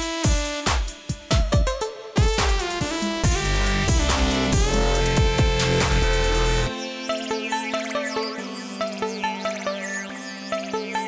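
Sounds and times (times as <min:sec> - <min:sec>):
dubstep electronic music: 0:00.0 - 0:11.0.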